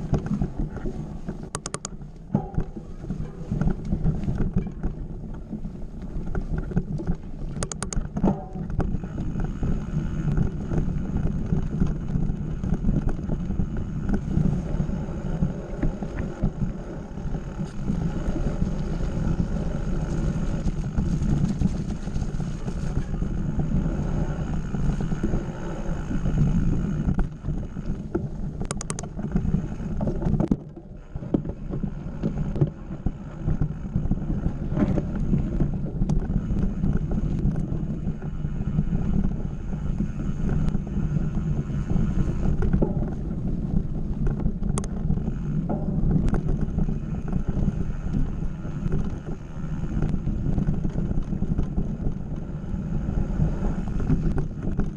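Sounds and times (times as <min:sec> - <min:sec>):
bike rattling over dirt trail: 0:00.0 - 0:54.9
wind rushing over microphone: 0:00.0 - 0:54.9
short clicks: 0:01.5 - 0:02.0, 0:07.6 - 0:08.0.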